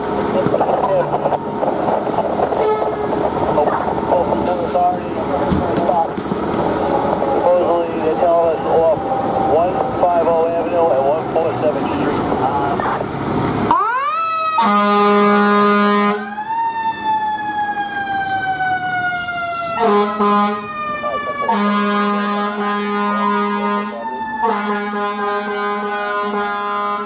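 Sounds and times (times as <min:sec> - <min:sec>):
wailing siren: 0:00.0 - 0:27.0
fire truck air horn blasts: 0:01.0 - 0:03.3, 0:14.6 - 0:16.4, 0:19.1 - 0:27.0.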